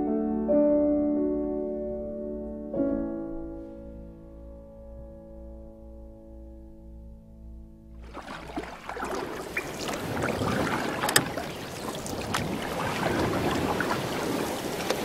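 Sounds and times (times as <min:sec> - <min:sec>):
rushing crackling water: 0:08.0 - 0:15.0
water drips and splashes: 0:08.0 - 0:15.0.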